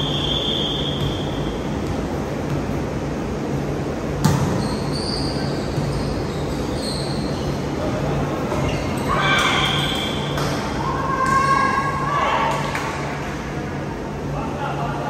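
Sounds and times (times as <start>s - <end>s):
steady low hum: 0.0s - 15.0s
volleyball rally play: 0.0s - 15.0s.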